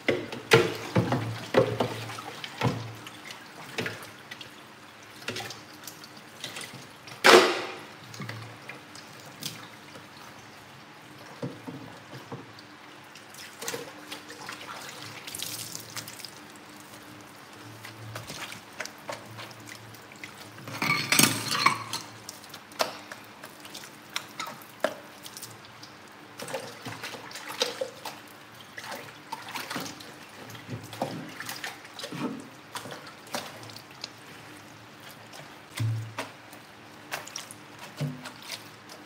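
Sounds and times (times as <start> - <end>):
things clattering in sink: 0.0 - 3.0, 6.4 - 8.4, 20.6 - 22.2, 35.7 - 36.4.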